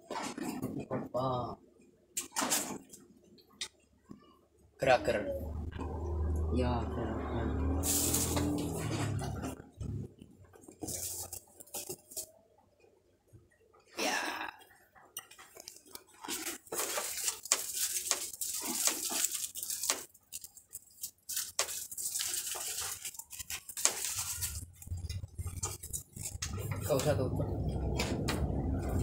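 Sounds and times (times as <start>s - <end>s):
thin plastic crinkling: 7.7s - 9.6s, 10.6s - 12.4s, 15.2s - 27.0s.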